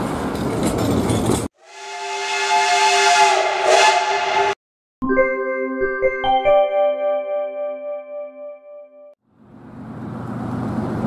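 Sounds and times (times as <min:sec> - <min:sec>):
locomotive horn: 0:01.6 - 0:04.6.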